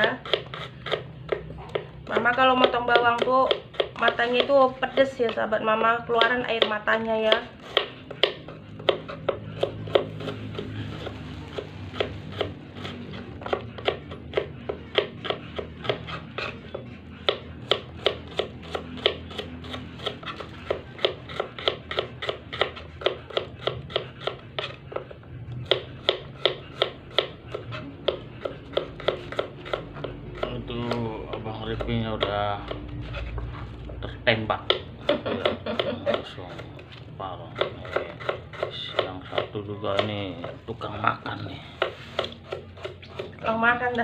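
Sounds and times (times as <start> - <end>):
knife chopping on wooden board: 0.0 - 36.8, 37.4 - 40.7, 41.7 - 43.4.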